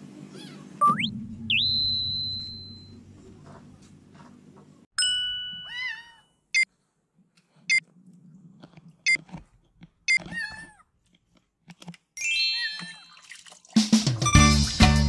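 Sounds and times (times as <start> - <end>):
short electronic beeps: 0.8 - 3.0.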